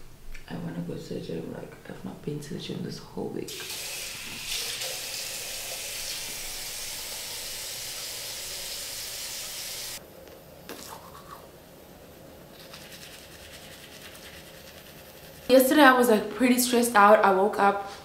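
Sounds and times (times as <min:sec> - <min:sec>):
tap water running into sink: 0:03.5 - 0:10.0.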